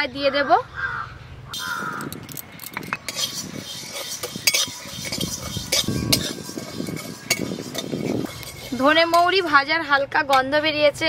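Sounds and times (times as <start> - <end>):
spatula scraping seeds in pan: 1.6 - 9.9
seeds rattling against pan: 1.9 - 9.8
spatula clinking on metal: 2.2 - 10.5.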